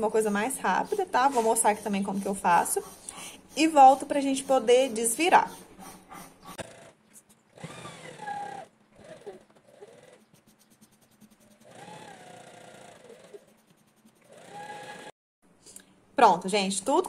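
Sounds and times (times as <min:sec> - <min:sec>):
sewing machine stitching: 0:06.5 - 0:15.1.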